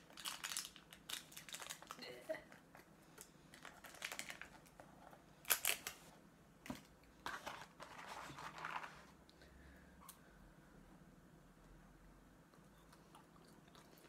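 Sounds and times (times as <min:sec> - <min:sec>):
paper packaging rustling: 0:00.0 - 0:02.0, 0:03.5 - 0:06.0, 0:06.7 - 0:09.2.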